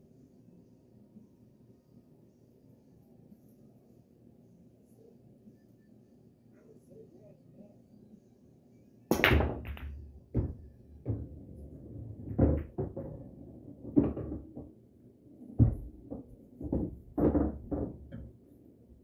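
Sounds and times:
pool balls clacking: 9.1 - 14.8, 15.4 - 18.4.

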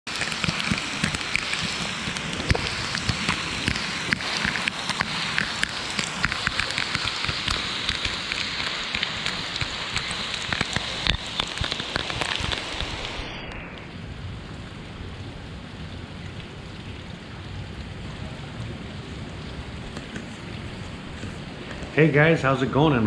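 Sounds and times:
heavy rain on pavement: 0.0 - 23.0
raindrop ticks: 0.1 - 14.6, 15.7 - 22.2.

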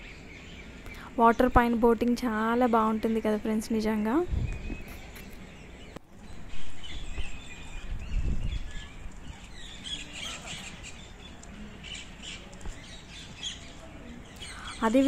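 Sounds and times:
parakeets chirping: 4.5 - 15.0.

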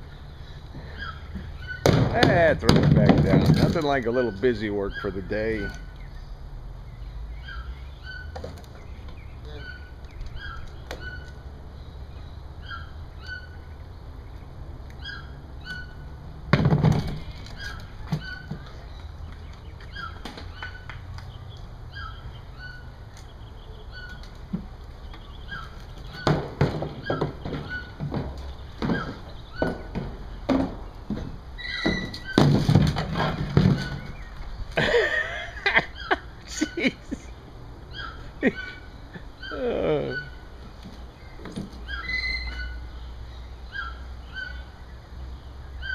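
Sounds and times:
small bird chirping: 17.5 - 26.3
knocks and clatters in cage: 24.0 - 34.4.

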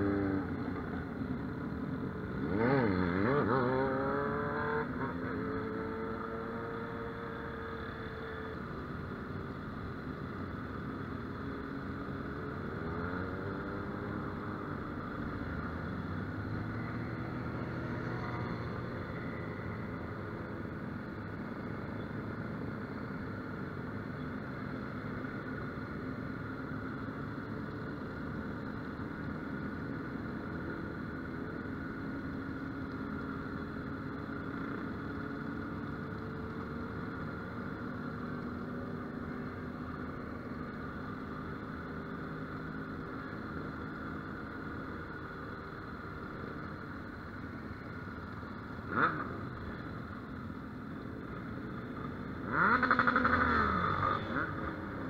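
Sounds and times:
motorcycle engine running: 26.2 - 55.0.

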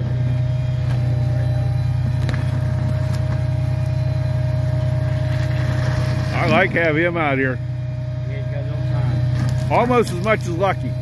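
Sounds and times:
faint steady whine: 0.0 - 11.0
truck engine droning: 0.0 - 11.0.

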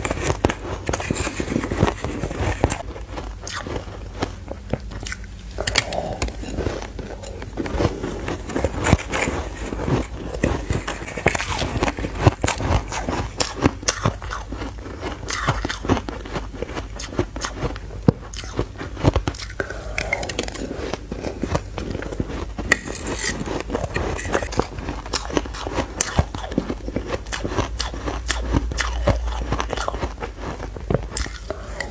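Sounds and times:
metal spoon scraping ice: 0.0 - 2.8, 5.6 - 13.7, 22.0 - 26.3
crushed ice being chewed: 0.0 - 31.9.

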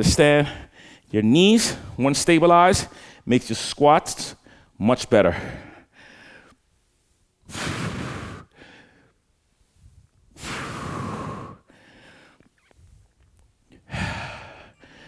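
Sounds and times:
man breathing hard: 0.4 - 1.1, 2.9 - 3.3, 4.4 - 13.0, 13.7 - 15.0.

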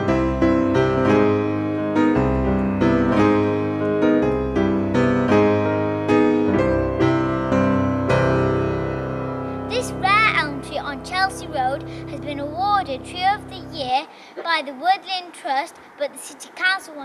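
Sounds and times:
piano chords ringing: 0.0 - 14.0.

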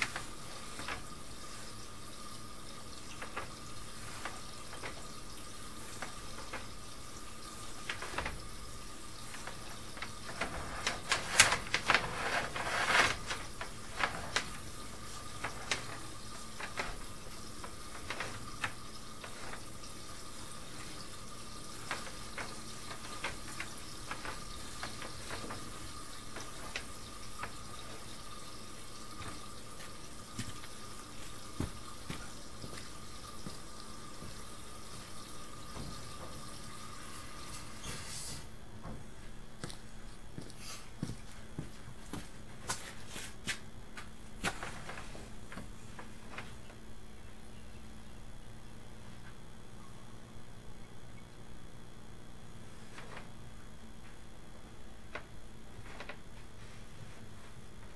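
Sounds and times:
water flowing down a drain: 0.0 - 38.6.

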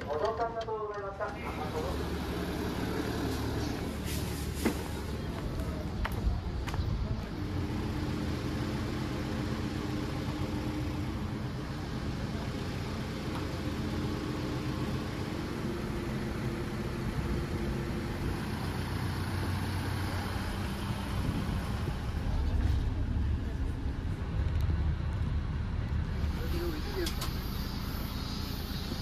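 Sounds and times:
street noise: 0.0 - 29.0
vehicle engine running: 0.0 - 29.0.

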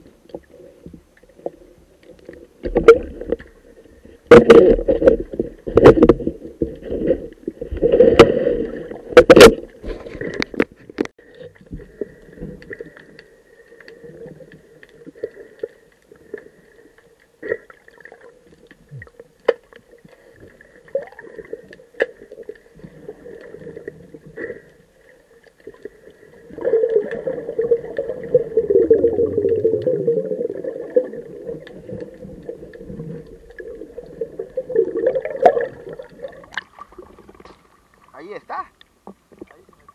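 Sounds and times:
sharp knocks and clicks underwater: 0.0 - 3.6, 4.2 - 16.5, 18.5 - 24.5
bubbling underwater: 26.4 - 37.4.

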